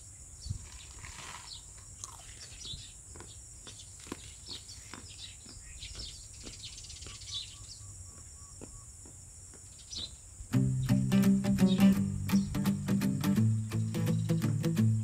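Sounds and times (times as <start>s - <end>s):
insects droning: 0.0s - 15.0s
birds chirping: 0.4s - 15.0s.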